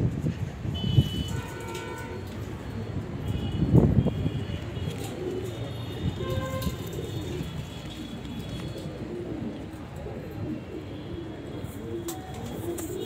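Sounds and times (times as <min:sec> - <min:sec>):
pigeons cooing: 0:04.1 - 0:13.0.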